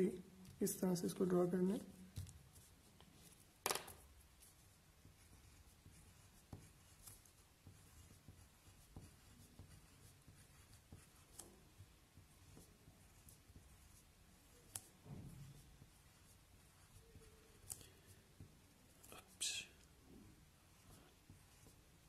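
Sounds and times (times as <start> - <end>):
pen scratching on paper: 4.2 - 19.3, 20.6 - 22.0.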